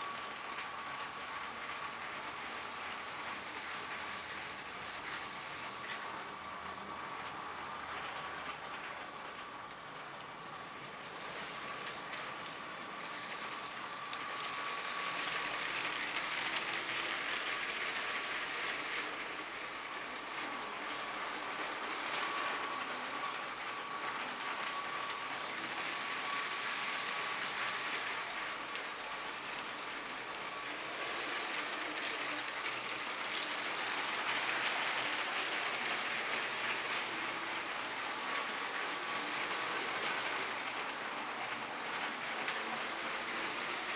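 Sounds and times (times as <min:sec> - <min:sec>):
toy train motor whirring: 0:00.0 - 0:43.9
plastic wheels clicking on track: 0:11.0 - 0:43.9.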